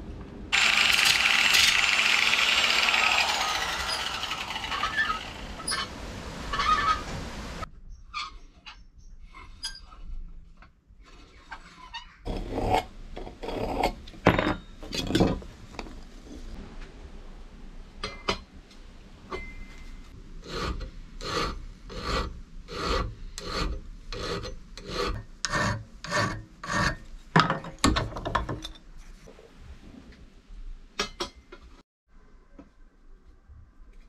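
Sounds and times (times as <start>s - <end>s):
hand file rasping on metal: 20.4s - 27.1s.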